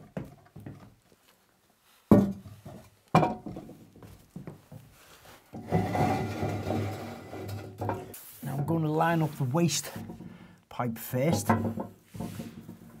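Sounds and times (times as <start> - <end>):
toilet scraping on tiled floor: 5.5 - 8.6.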